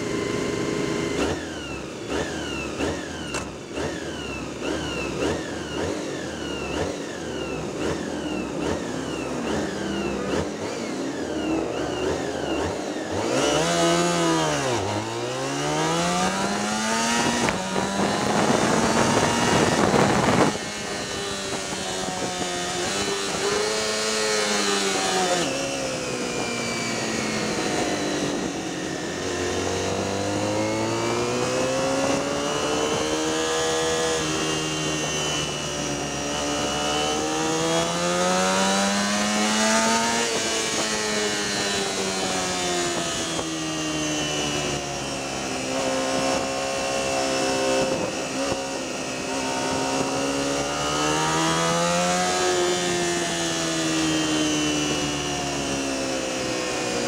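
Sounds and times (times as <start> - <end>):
motorcycle accelerating through gears: 0.0 - 57.0
motorcycle engines revving: 0.0 - 57.0
wind noise: 13.3 - 34.4, 39.1 - 54.0.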